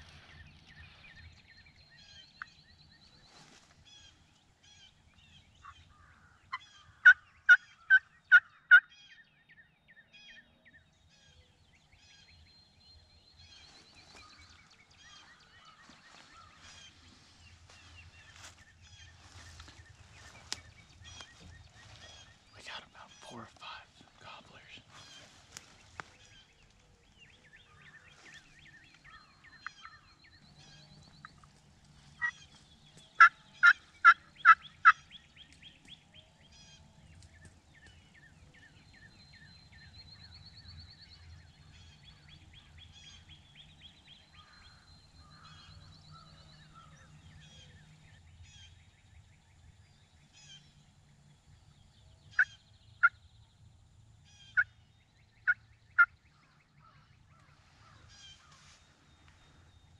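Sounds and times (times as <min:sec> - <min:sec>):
songbird calls and trills: 0:00.0 - 0:59.9
wild turkey yelping: 0:05.6 - 0:09.1, 0:33.2 - 0:35.1.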